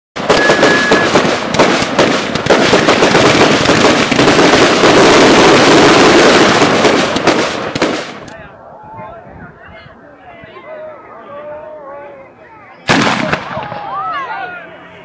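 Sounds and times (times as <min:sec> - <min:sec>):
fireworks crackling barrage: 0:00.2 - 0:08.4, 0:12.9 - 0:14.1.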